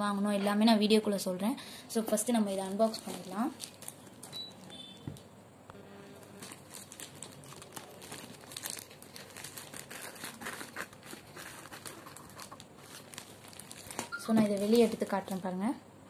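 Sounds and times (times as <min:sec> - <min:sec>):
plastic bag crinkling: 0:02.6 - 0:05.2, 0:06.2 - 0:15.4
scissors cutting plastic: 0:06.4 - 0:15.0.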